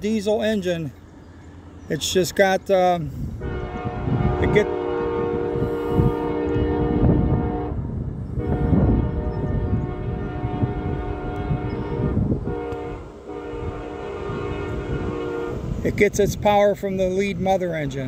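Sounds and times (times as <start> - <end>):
locomotive air horn chord: 3.2 - 15.9.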